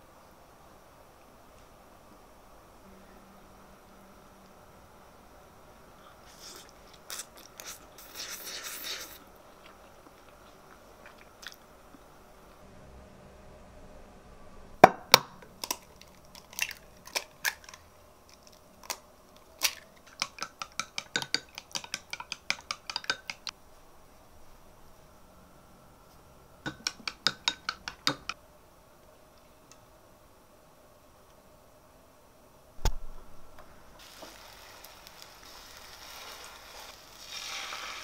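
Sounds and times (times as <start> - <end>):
chopsticks clicking against bowl: 20.1 - 23.5, 26.7 - 28.4.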